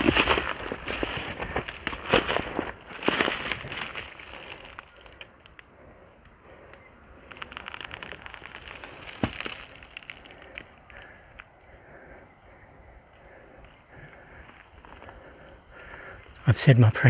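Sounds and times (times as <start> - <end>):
footsteps crunching dry leaves: 0.0 - 5.2, 7.2 - 11.1
stick cracking: 7.3 - 11.5.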